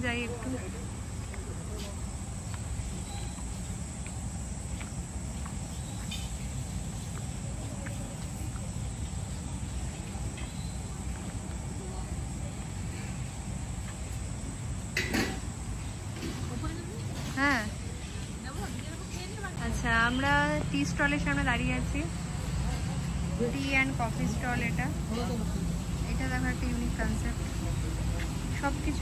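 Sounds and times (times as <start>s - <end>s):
faint insect chirps: 0.0s - 29.0s.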